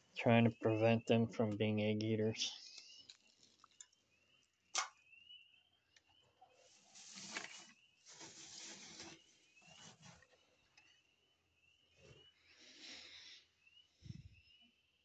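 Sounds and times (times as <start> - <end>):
straw rustling in nest box: 6.6 - 10.4.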